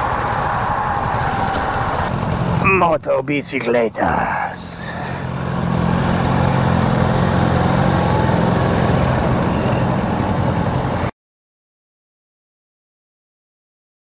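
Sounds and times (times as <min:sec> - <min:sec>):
motorcycle engine running: 0:00.0 - 0:02.9, 0:04.9 - 0:11.1
road and wind noise: 0:00.0 - 0:11.1.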